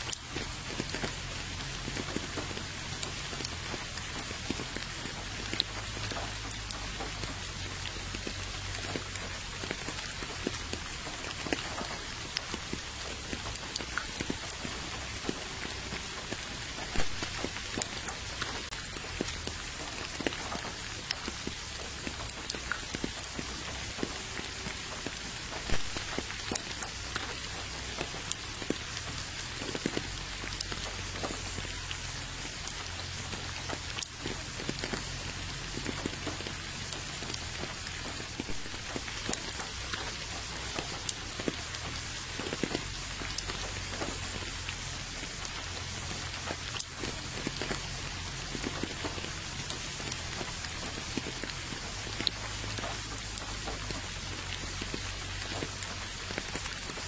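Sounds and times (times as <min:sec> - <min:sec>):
rain falling on a puddle: 0:00.0 - 0:57.0.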